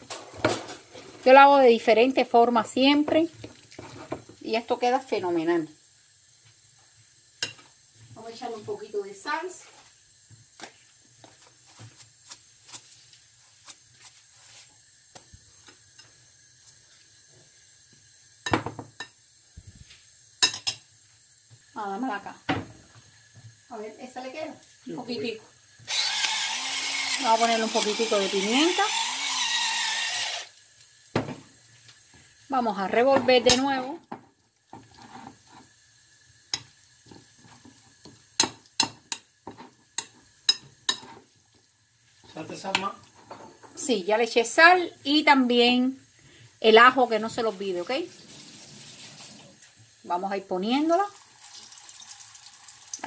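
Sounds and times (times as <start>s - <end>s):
squelching batter stirring: 3.2s - 4.4s, 10.7s - 15.3s.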